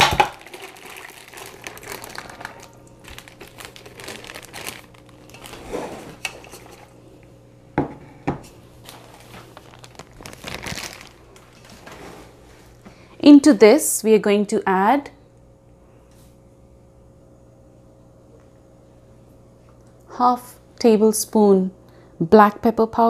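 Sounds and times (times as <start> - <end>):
plastic bag crinkling: 0.0 - 6.9, 8.8 - 12.0.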